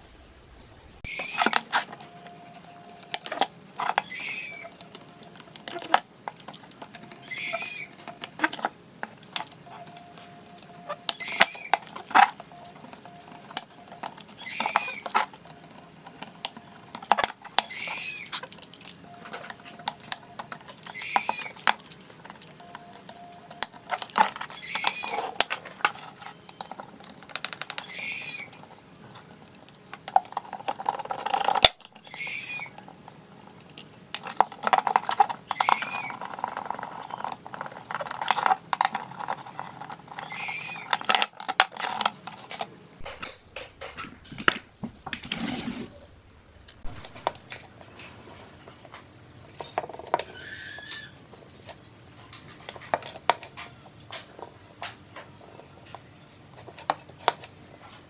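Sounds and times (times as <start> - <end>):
hand tools clicking and tapping: 1.0 - 45.2
scraping rustle: 45.0 - 46.1.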